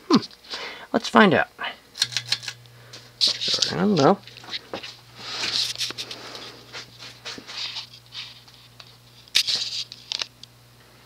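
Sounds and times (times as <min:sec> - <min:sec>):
ceiling fan hum: 0:00.0 - 0:11.0.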